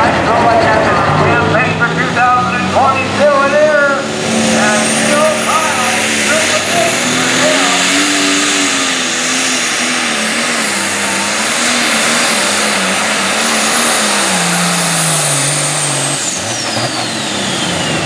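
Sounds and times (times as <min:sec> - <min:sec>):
diesel tractor engine running hard: 0:00.0 - 0:18.0
high turbo whistle: 0:03.8 - 0:18.0.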